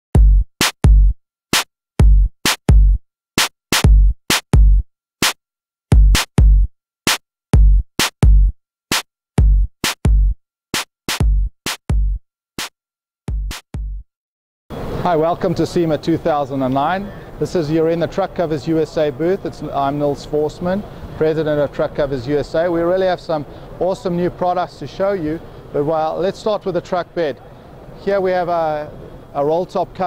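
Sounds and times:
drum machine beat with deep thumps: 0.1 - 12.7, 13.3 - 14.1.

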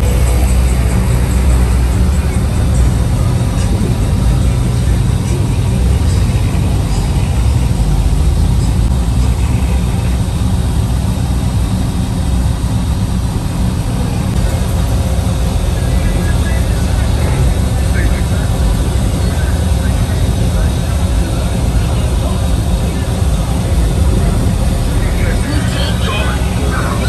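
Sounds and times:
engine running low rumble: 0.0 - 27.0.

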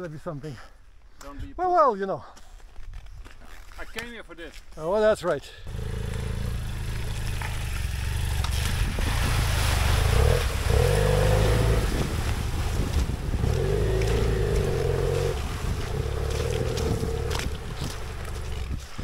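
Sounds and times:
motorcycle engine revving: 5.7 - 18.9.

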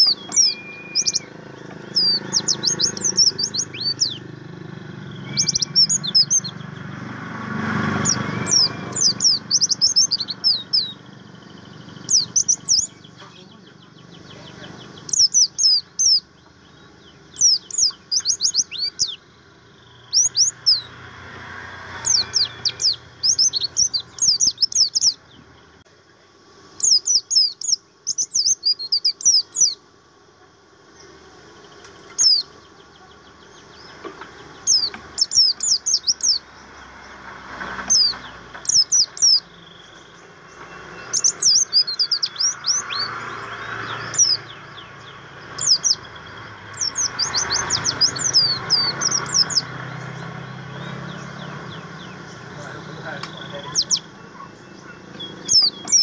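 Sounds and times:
bird singing high slurred notes: 0.0 - 25.9, 26.6 - 30.0, 30.8 - 56.0.

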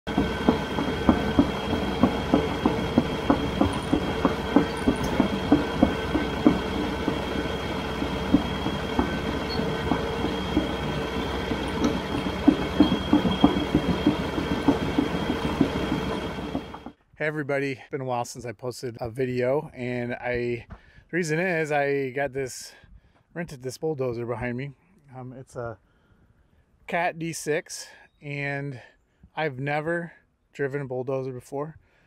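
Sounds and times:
bulldozer engine whine: 0.0 - 16.9
steel tracks clanking: 0.1 - 17.0.

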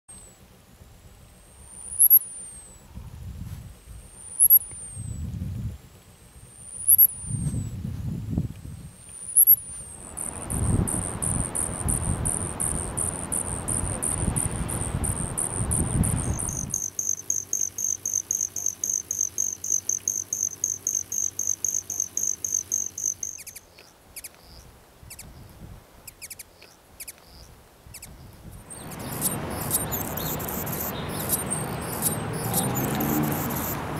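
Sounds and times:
high pulsed insect-like trill: 1.3 - 2.9, 3.8 - 7.8, 8.6 - 33.9
hummingbird wing trill: 1.5 - 2.9, 3.6 - 5.4, 6.3 - 7.9, 8.6 - 25.4, 26.1 - 33.9
wind noise: 2.9 - 6.0, 6.8 - 16.9, 24.6 - 26.2, 27.5 - 33.9
scratchy high clicks: 8.9 - 24.5, 28.0 - 33.9.

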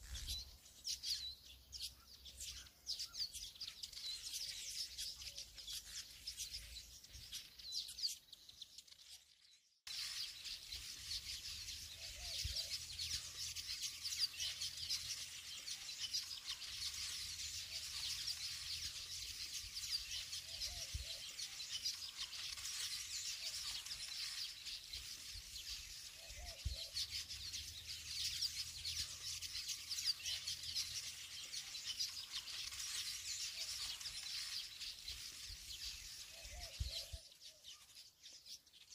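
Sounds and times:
birds chirping and twittering: 0.0 - 38.9.

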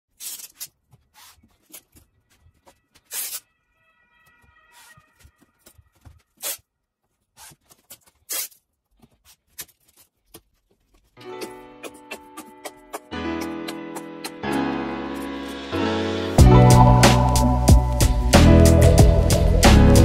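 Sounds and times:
masking tape ripping: 0.1 - 3.5, 5.9 - 13.1.

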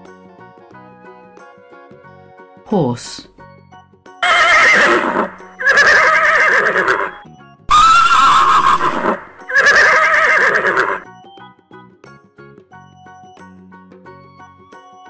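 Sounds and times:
soft background music: 0.0 - 15.0
horse whinnying: 4.2 - 11.0.

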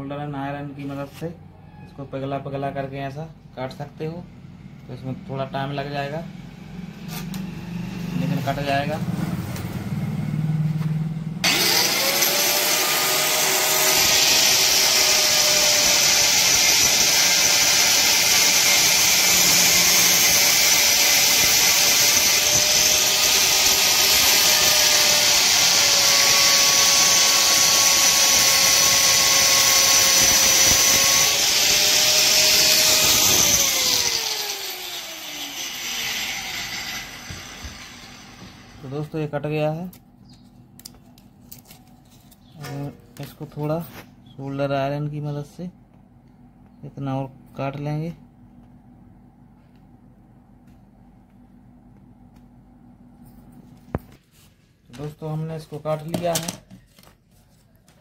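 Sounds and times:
grinder winding down whine: 4.8 - 39.1
angle grinder cutting metal: 11.4 - 39.0.

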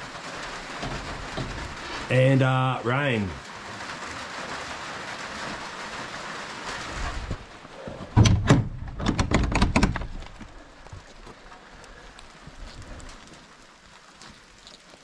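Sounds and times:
light rain: 0.0 - 15.0
door shutting with bangs: 8.0 - 10.2.

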